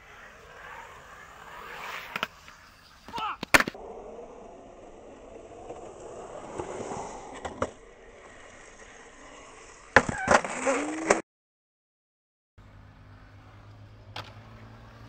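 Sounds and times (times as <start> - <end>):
skateboard wheels rolling on pavement: 0.0 - 11.2, 12.6 - 15.0
skateboard clacks: 2.0 - 3.8.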